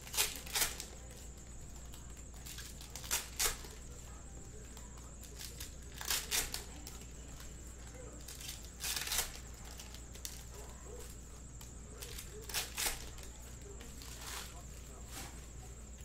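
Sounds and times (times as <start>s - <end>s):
foil wrappers tearing and crinkling: 0.0s - 1.0s, 2.4s - 3.8s, 5.2s - 7.5s, 8.2s - 11.1s, 12.0s - 13.3s.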